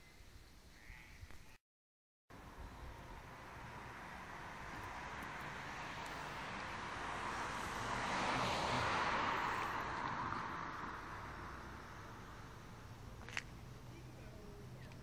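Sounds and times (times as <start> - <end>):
car driving past: 2.4 - 13.4.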